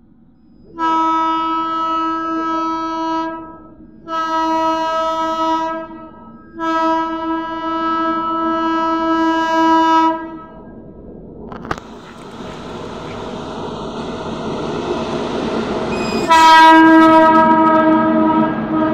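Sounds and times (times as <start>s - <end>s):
train horn blasts: 0.7s - 10.6s, 15.9s - 18.9s.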